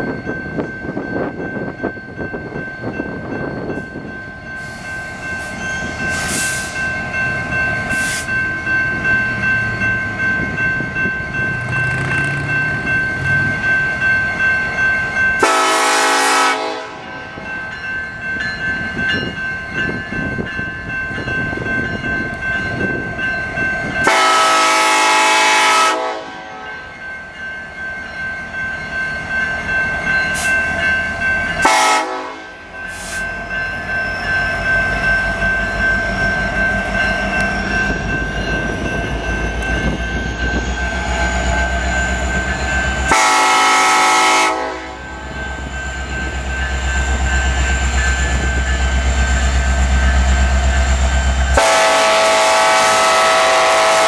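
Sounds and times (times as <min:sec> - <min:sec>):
train running by: 0:00.0 - 0:54.0
locomotive air horn blasts: 0:15.4 - 0:17.3, 0:24.0 - 0:26.8, 0:31.6 - 0:32.6, 0:43.1 - 0:45.1, 0:51.6 - 0:54.0.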